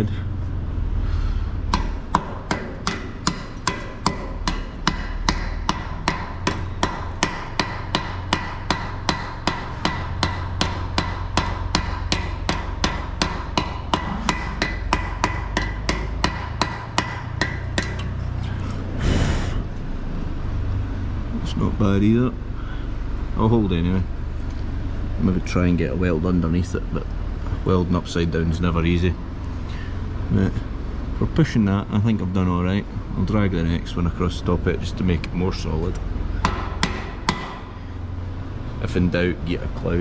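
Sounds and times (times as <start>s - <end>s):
steady low hum: 0.0s - 40.0s
hammer rapping steel: 1.7s - 18.2s, 36.4s - 37.7s.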